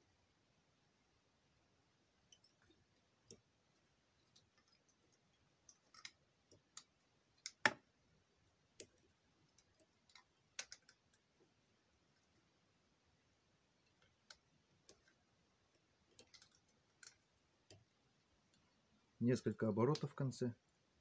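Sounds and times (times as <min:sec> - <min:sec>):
light clicks and ticks: 0:02.3 - 0:03.5, 0:04.2 - 0:07.8, 0:13.8 - 0:18.8, 0:19.6 - 0:20.3.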